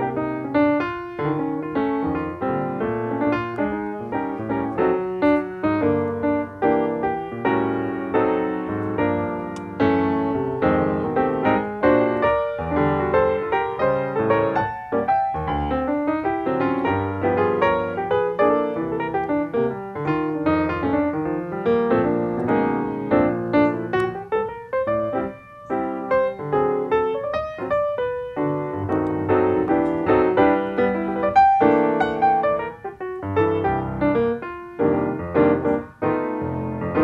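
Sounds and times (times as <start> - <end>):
piano music: 0.0 - 37.0.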